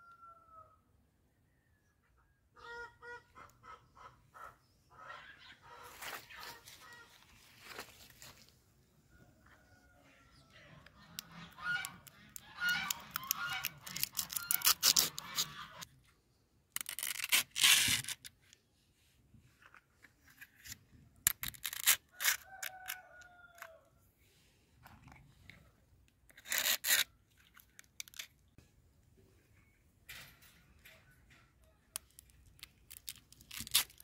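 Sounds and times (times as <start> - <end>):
dried fish crunching on stick: 11.8 - 15.6, 32.0 - 34.0.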